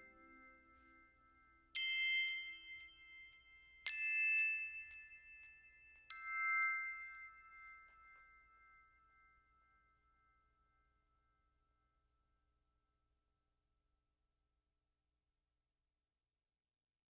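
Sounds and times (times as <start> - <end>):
bell-like chime notes: 0.0 - 10.8.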